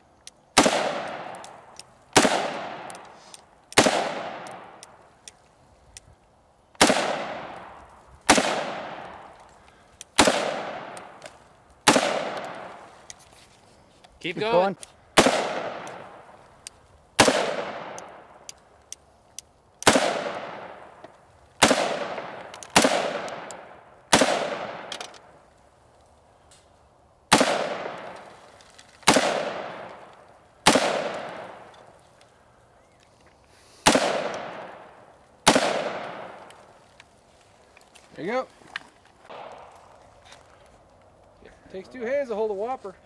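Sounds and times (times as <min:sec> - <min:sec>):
rifle shots echoing: 0:00.6 - 0:03.1, 0:03.7 - 0:04.8, 0:06.8 - 0:09.4, 0:10.2 - 0:11.2, 0:11.8 - 0:12.8, 0:15.2 - 0:16.3, 0:17.2 - 0:18.3, 0:19.8 - 0:20.9, 0:21.6 - 0:25.0, 0:27.3 - 0:28.2, 0:29.0 - 0:31.7, 0:33.8 - 0:36.6, 0:39.3 - 0:39.9.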